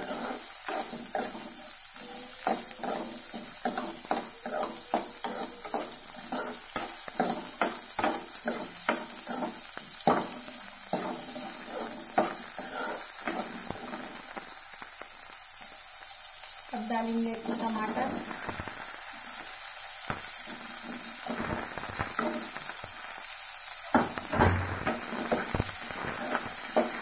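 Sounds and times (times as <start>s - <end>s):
ladle scraping and knocking pan: 0.0s - 14.0s, 24.0s - 27.0s
oil sizzling: 0.0s - 27.0s.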